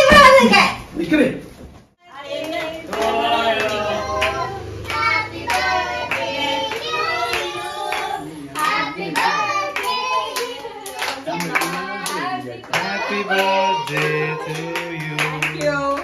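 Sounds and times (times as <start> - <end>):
group singing together: 2.0 - 16.0
hands clapping: 9.2 - 16.0.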